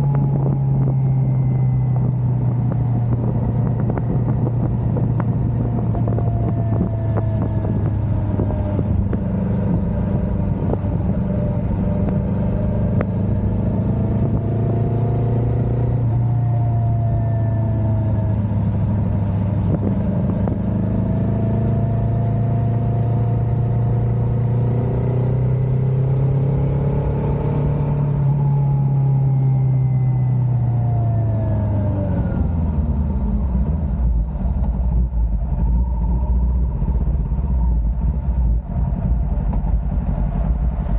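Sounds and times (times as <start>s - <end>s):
motorcycle engine running: 0.0s - 17.2s, 32.9s - 40.9s.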